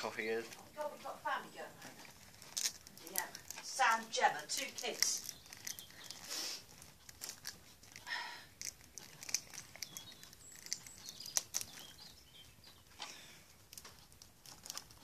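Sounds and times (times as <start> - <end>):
plastic wrap tearing and crinkling: 1.8 - 12.2, 13.6 - 15.0
stretched plastic squeaks: 13.7 - 15.0.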